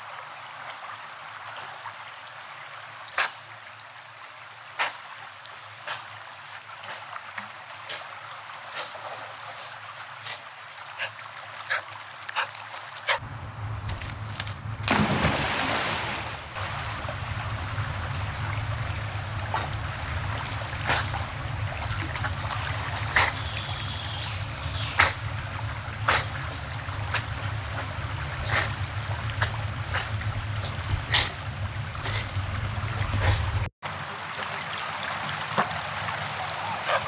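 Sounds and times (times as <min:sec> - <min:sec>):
short water splashes: 0:13.9 - 0:37.0
dog splashing into water: 0:14.0 - 0:18.4.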